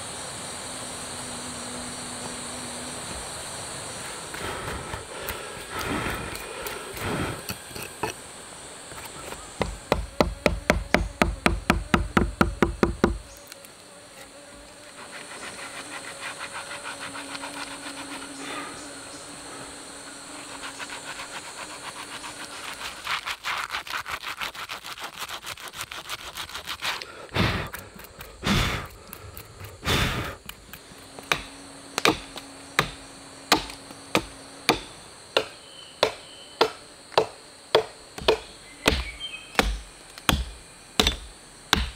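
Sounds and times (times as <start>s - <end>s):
hand tool chopping wood: 9.2s - 13.2s, 29.6s - 41.9s.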